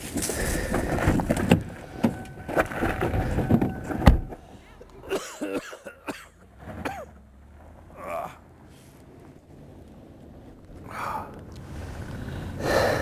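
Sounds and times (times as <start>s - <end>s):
man coughing: 5.0s - 7.1s
man groaning in pain: 8.0s - 8.4s.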